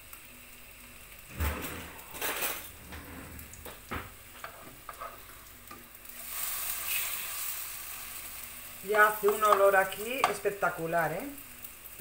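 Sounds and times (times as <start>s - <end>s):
fritters sizzling in oil: 0.0s - 12.0s
metal utensils scraping a pan: 1.3s - 3.5s, 4.4s - 5.3s.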